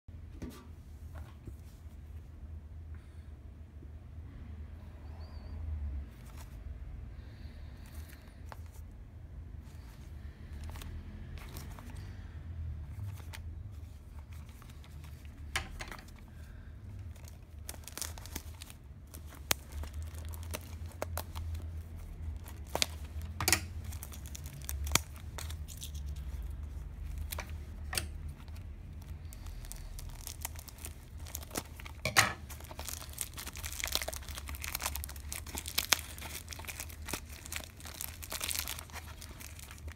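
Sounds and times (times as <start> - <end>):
low steady hum: 0.1 - 39.9
cellophane wrap crinkling: 9.7 - 12.2, 12.9 - 39.9.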